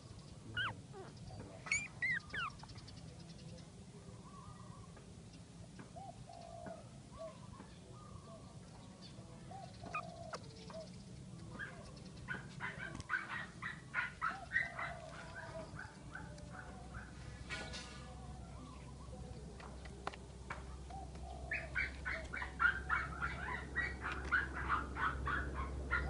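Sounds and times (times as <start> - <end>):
dog whimpering: 0.6 - 2.7.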